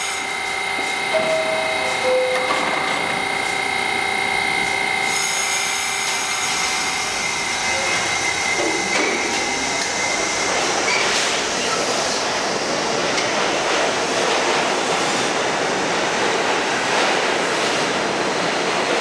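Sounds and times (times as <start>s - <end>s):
subway train pulling out: 0.0s - 19.0s.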